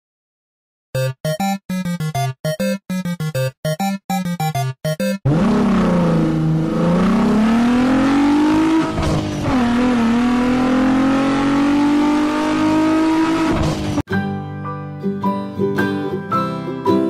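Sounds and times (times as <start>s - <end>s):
car engine accelerating: 5.3s - 14.0s.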